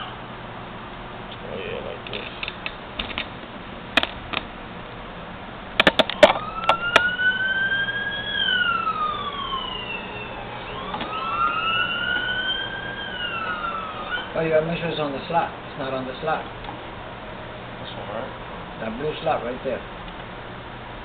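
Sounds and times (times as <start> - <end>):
emergency vehicle siren wailing: 0.0 - 0.3, 6.0 - 15.5
clicks and knocks on metal case: 5.8 - 6.4.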